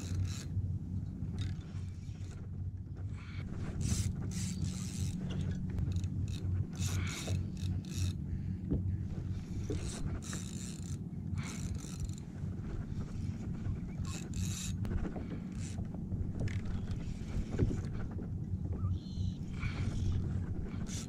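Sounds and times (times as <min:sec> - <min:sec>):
fishing reel ratcheting and whirring: 0:00.0 - 0:00.6, 0:03.7 - 0:08.2, 0:09.7 - 0:12.3, 0:13.6 - 0:17.0, 0:20.8 - 0:21.0
low steady rumble: 0:00.0 - 0:21.0.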